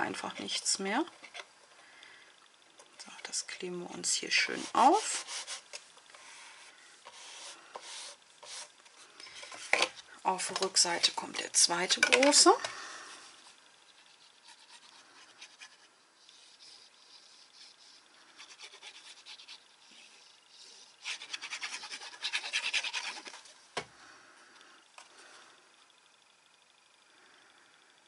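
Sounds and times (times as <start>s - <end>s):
paper scratching and rustling: 21.0s - 23.5s.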